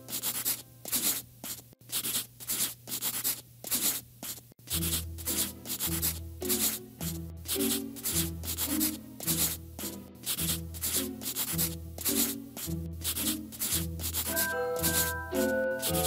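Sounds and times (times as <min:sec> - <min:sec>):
soft background music: 0:00.0 - 0:01.1, 0:04.7 - 0:16.0
pen scribbling on paper: 0:00.0 - 0:16.0.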